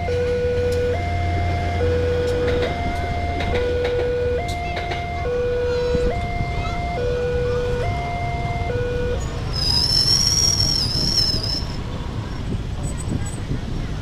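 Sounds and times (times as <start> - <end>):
level crossing two-tone alarm: 0.0 - 11.6
motorcycle engines rumbling: 0.0 - 14.0
high wavering squeal: 9.2 - 11.8.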